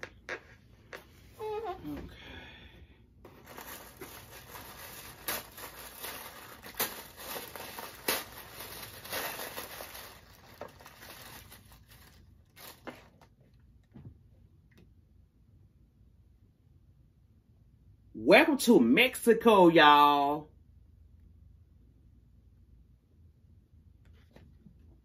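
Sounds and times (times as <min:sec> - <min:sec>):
tissue paper rustling: 0:03.3 - 0:13.3.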